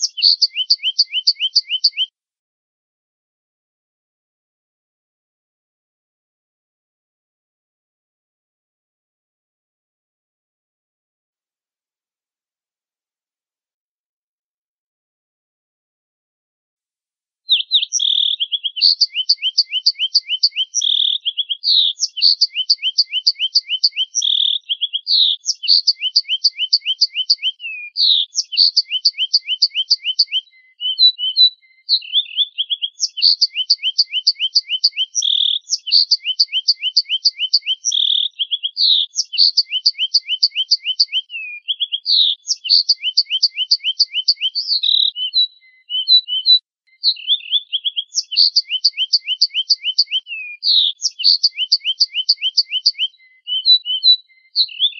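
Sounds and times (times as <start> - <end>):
finch trilling song: 0.0 - 2.1, 17.5 - 54.9.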